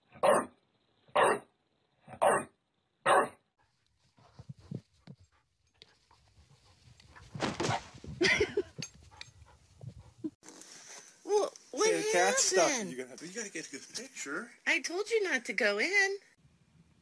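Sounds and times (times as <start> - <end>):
dog barking: 0.2 - 0.5, 1.2 - 1.5, 2.1 - 3.4
rustling noise: 3.6 - 11.7.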